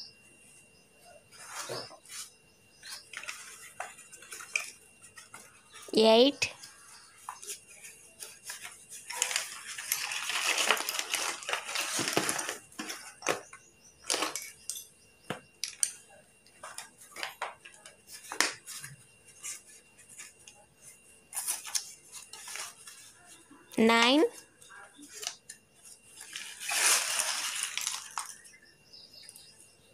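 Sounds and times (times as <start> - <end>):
slate pencils rattling and clinking: 2.8 - 5.9, 6.6 - 15.0, 15.6 - 20.5, 25.1 - 28.6.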